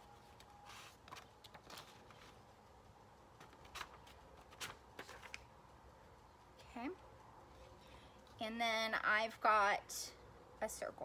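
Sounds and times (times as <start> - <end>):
paper rustling and tapping: 0.3 - 2.7, 3.3 - 5.5.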